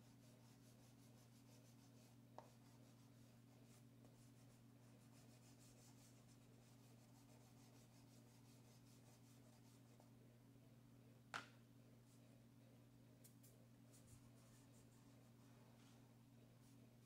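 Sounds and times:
chalk pastel scratching on paper: 0.0s - 10.0s
steady low hum: 0.0s - 17.0s.

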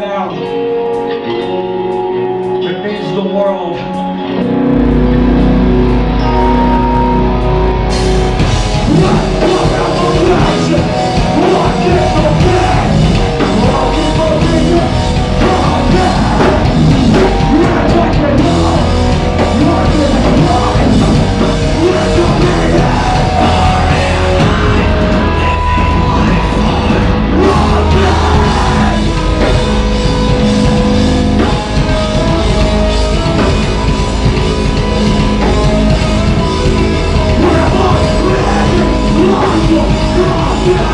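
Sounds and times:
bass: 0.0s - 40.9s
distorted guitars: 0.0s - 40.9s
pounding drums: 8.0s - 40.9s
shouted vocals: 8.9s - 29.6s, 37.2s - 40.9s.

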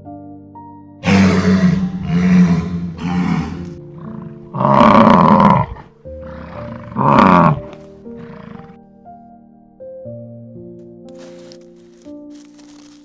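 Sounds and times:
soft background music: 0.0s - 13.0s
big cat roaring: 1.0s - 8.8s.

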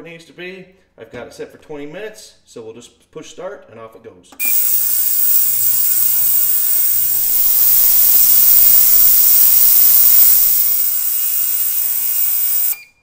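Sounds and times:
ultrasonic cleaner hiss: 4.4s - 12.9s.

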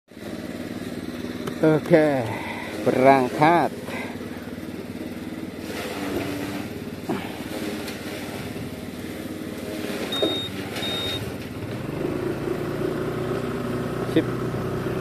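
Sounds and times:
scooter engine running: 0.1s - 15.0s
short high beeps: 10.1s - 11.3s.

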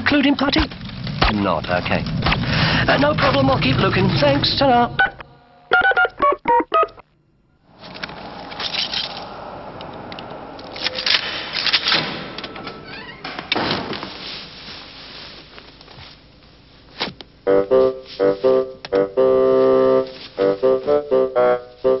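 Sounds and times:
piano music: 3.1s - 13.2s.

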